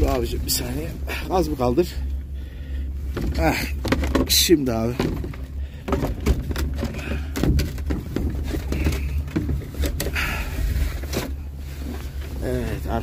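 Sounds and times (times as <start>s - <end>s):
steady low rumble: 0.0s - 13.0s
metallic knocks and clanks: 3.1s - 10.2s.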